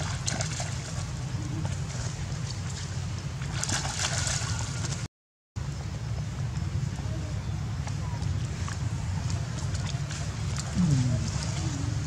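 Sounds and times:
muddy water sloshing and splashing: 0:00.0 - 0:05.1, 0:07.8 - 0:12.0
steady rush of water: 0:00.0 - 0:05.1, 0:06.9 - 0:12.0.

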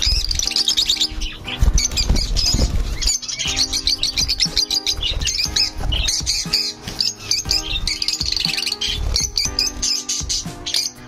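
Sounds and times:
background music: 0:00.0 - 0:11.0
lovebirds chattering: 0:00.0 - 0:11.0.

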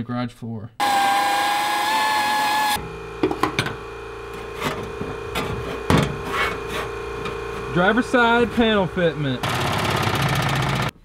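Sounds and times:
power tool whining: 0:00.8 - 0:11.0
steady low hum: 0:02.8 - 0:10.9.

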